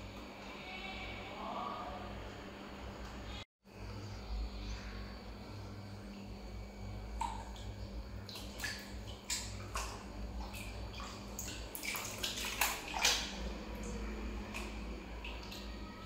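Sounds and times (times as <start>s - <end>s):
steady low hum: 0.0s - 16.0s
water splashing in a plastic tub: 7.1s - 16.0s.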